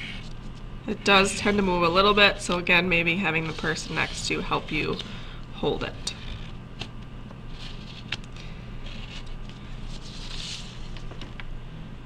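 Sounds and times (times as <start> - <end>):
pencil scratching on paper: 3.2 - 5.1
paper rustling: 7.5 - 11.3.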